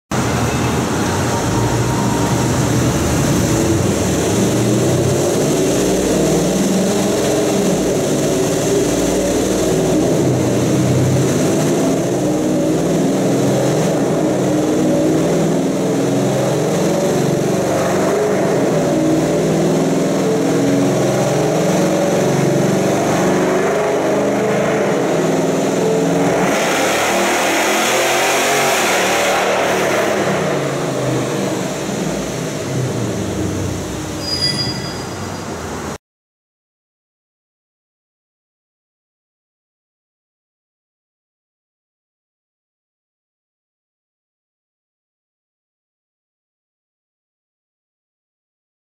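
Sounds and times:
loud engine exhaust on a dyno: 0.1 - 36.0.

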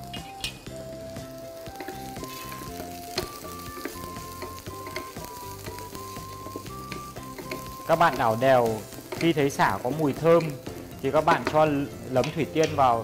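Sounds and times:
instrumental background music: 0.0 - 13.0
lemongrass sizzling in oil: 0.0 - 13.0
spatula clicking against pan: 3.2 - 5.8.

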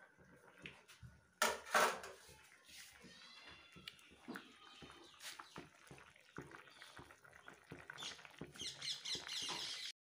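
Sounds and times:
curry bubbling and popping: 2.4 - 10.0.

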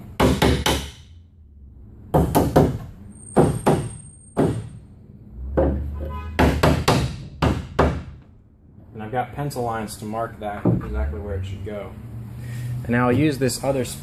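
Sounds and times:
wood-on-wood knocks: 5.5 - 8.3, 10.6 - 10.9.

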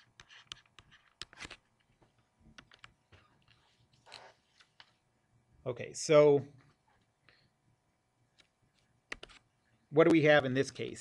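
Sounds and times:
faint computer clicking: 8.3 - 9.5.

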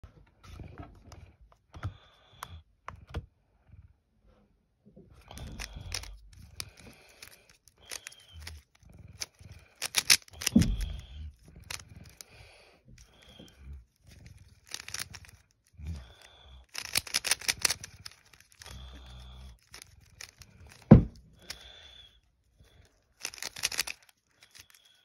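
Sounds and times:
puzzle cube turning clicks: 5.2 - 22.1, 22.9 - 25.0.

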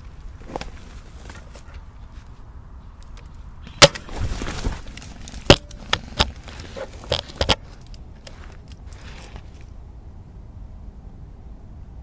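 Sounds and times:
rustling: 0.0 - 9.8
rifle clicks and knocks: 3.0 - 8.9.

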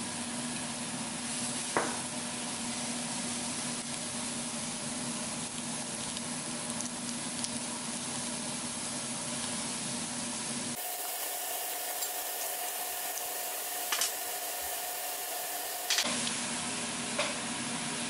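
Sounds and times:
meat sizzling on a grill pan: 9.5 - 16.0.

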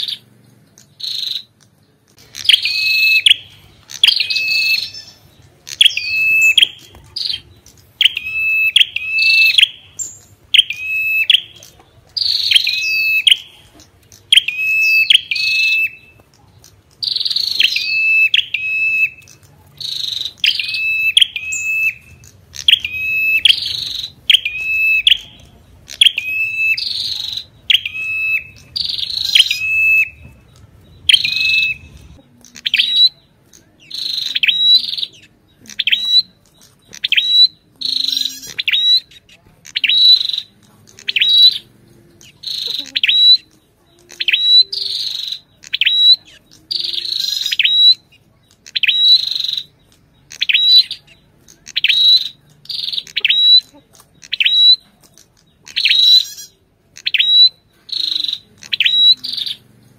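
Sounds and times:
bird whistling song: 0.0 - 59.9.

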